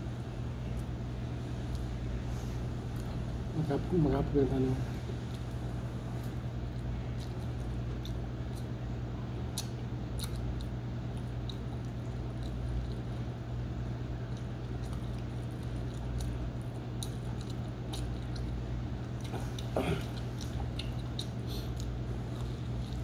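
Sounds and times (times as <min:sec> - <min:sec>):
steady low hum: 0:00.0 - 0:23.0
person chewing: 0:05.1 - 0:23.0.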